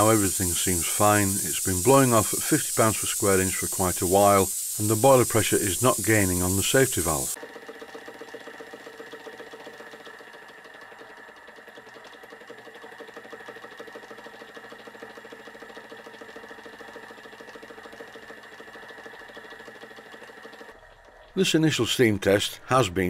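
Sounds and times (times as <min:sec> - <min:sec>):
safety valve hissing: 0:00.0 - 0:07.4
steam engine running: 0:00.0 - 0:20.8.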